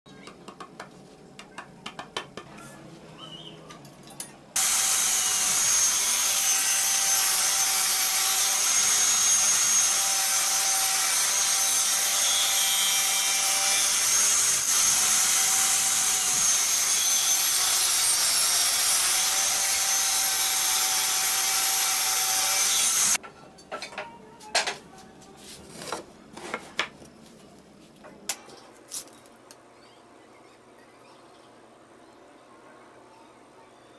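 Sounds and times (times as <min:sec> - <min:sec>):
table saw cutting wood: 0:04.6 - 0:23.2.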